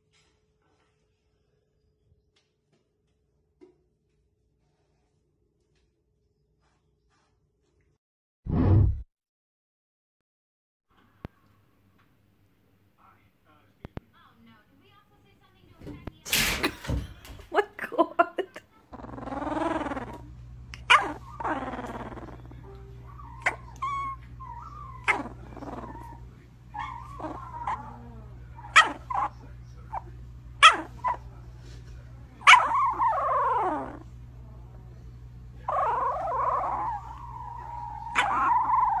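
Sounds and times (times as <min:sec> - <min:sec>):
puppy whining: 0:18.9 - 0:31.3, 0:32.4 - 0:34.2, 0:35.6 - 0:39.0
puppy growling softly: 0:18.9 - 0:39.0
puppy yipping: 0:20.8 - 0:30.0, 0:30.6 - 0:31.2, 0:32.4 - 0:34.0, 0:35.7 - 0:39.0.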